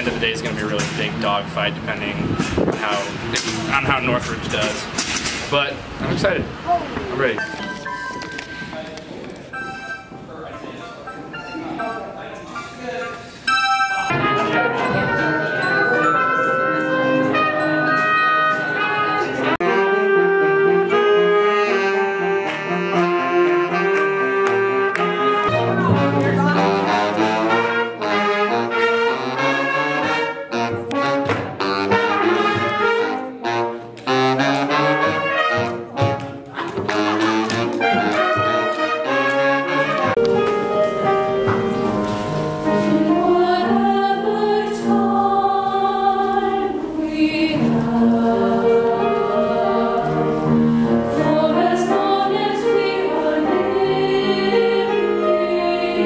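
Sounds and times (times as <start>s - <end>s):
choir singing held chords: 13.0s - 36.1s, 37.0s - 56.0s
horn section playing: 13.5s - 45.2s.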